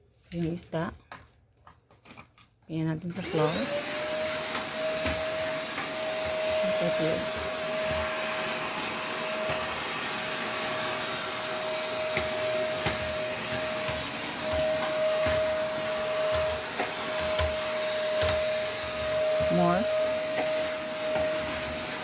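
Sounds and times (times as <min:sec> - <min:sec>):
vacuum cleaner running: 0:03.0 - 0:22.0.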